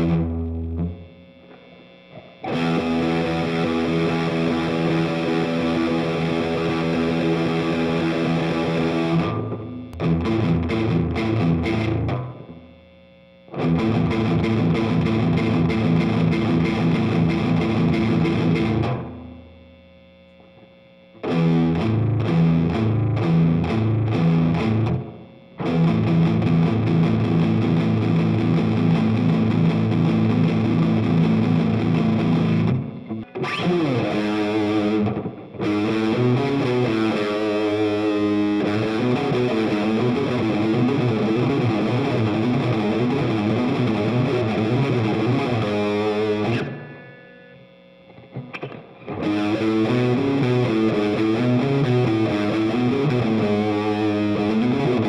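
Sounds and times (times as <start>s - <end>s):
electric guitar single-note runs: 0.0s - 12.8s, 13.5s - 19.6s, 21.2s - 55.0s.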